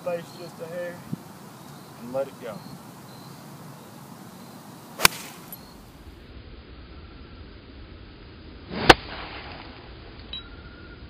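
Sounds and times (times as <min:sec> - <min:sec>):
golf club striking ball: 0:05.0 - 0:05.7
golf club swing whoosh: 0:05.0 - 0:05.7.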